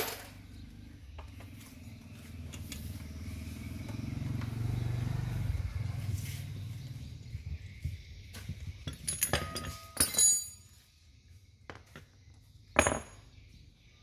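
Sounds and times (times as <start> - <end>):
metal tools clinking: 0.0 - 0.4, 8.8 - 10.8.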